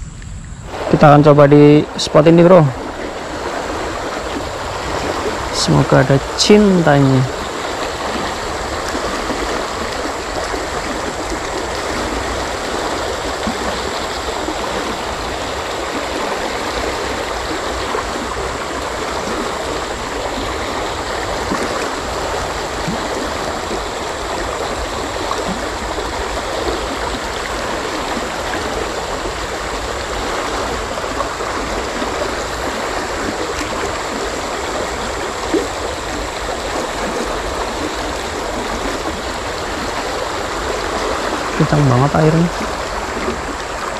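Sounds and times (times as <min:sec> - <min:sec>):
person speaking: 0:00.7 - 0:02.8, 0:05.5 - 0:07.4, 0:41.6 - 0:42.7
river rushing over rocks: 0:00.7 - 0:43.9.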